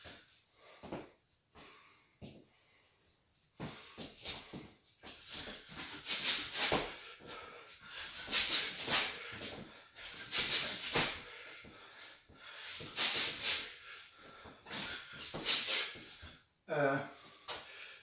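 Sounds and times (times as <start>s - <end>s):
man hissing exhales: 5.3s - 16.3s.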